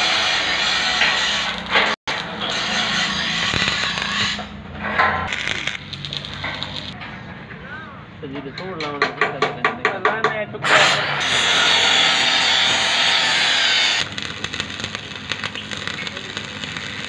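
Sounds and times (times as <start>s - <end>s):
arc welding crackle: 0.0s - 4.6s, 5.2s - 7.0s, 11.3s - 17.0s
angle grinder cutting steel: 0.0s - 7.0s, 10.6s - 17.0s.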